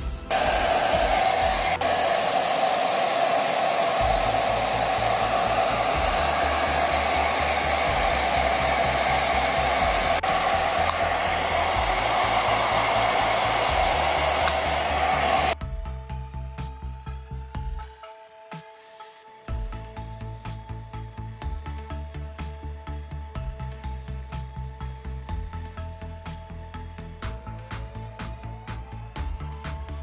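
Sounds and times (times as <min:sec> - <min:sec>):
hair dryer running: 0:00.0 - 0:15.6.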